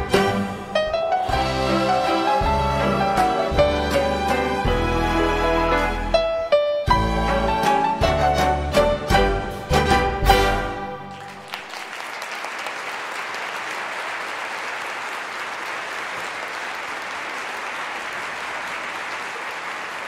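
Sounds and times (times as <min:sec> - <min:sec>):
audience applauding: 0:10.6 - 0:20.0.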